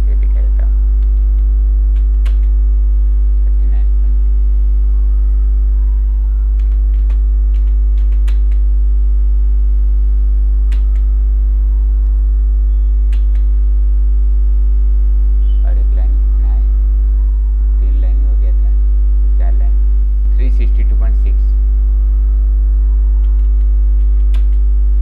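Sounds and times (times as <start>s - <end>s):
electrical mains hum: 0.0s - 25.0s
keyboard and mouse clicks: 1.0s - 2.5s, 6.6s - 8.6s, 10.7s - 11.1s, 13.1s - 13.5s, 23.2s - 24.6s.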